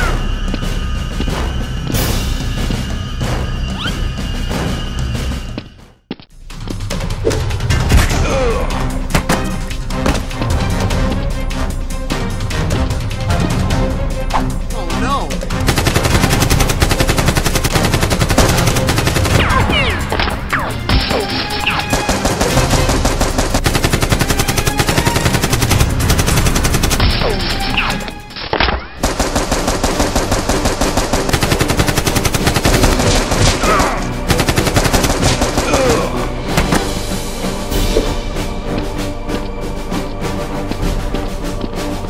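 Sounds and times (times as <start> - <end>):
machine-gun bursts: 15.7 - 19.5, 21.9 - 27.1, 29.0 - 33.6, 34.3 - 35.8.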